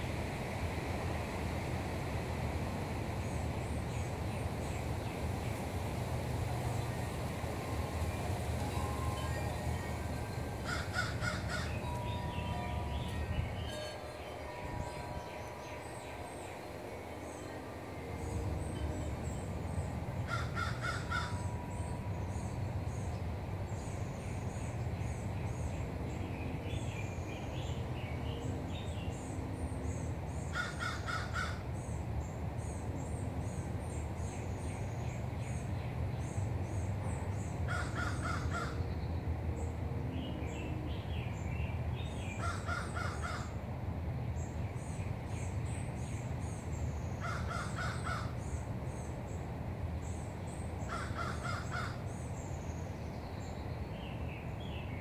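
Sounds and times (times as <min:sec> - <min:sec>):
bird calling harsh notes: 0:10.2 - 0:14.8.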